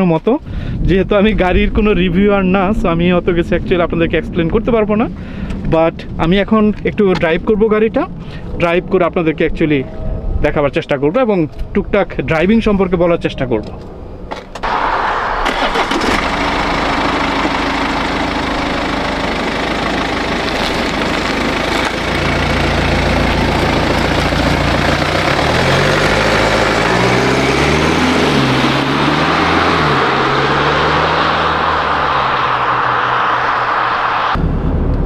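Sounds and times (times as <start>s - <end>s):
steady rushing noise: 0.8s - 11.1s, 31.7s - 35.0s
car engine accelerating: 14.6s - 35.0s.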